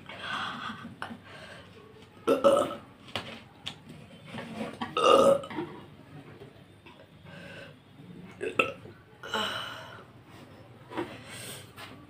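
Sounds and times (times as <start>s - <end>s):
woman burping: 2.2s - 2.8s, 5.0s - 5.6s, 8.4s - 9.6s.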